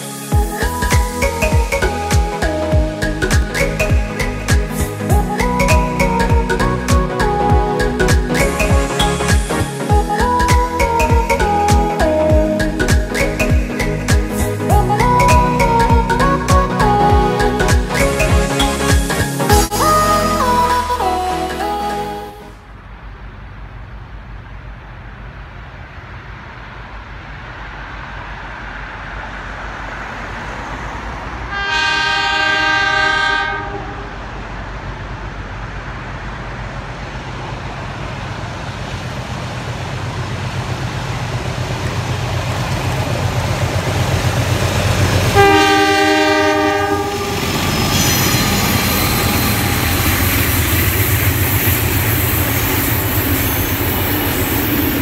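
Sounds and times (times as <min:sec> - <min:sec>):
diesel engine noise: 0:00.0 - 0:55.0
locomotive horn blasts: 0:31.5 - 0:34.2, 0:45.3 - 0:49.4
train carriages clickety-clack: 0:34.5 - 0:55.0.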